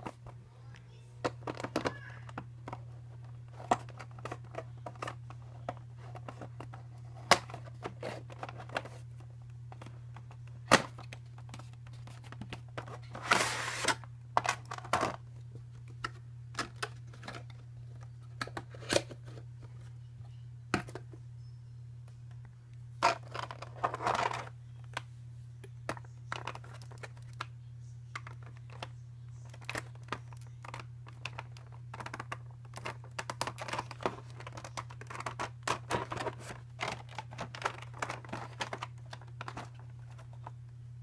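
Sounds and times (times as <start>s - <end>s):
steady low hum: 0.0s - 41.0s
scraping rustle: 13.2s - 14.0s.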